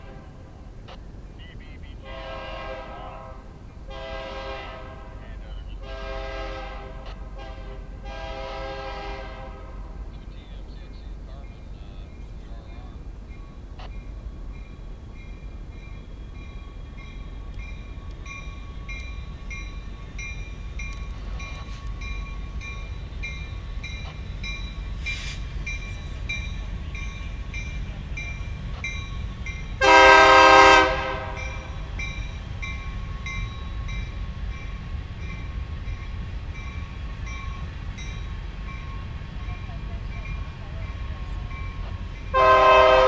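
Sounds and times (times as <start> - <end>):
locomotive horn blast: 0.0 - 0.7, 2.0 - 10.4, 29.8 - 34.1, 39.5 - 43.0
freight train rumbling: 0.0 - 43.0.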